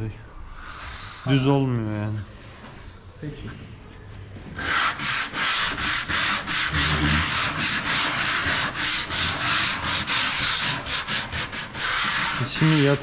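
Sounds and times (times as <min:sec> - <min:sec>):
sandpaper rubbing on wood: 0:04.6 - 0:13.0.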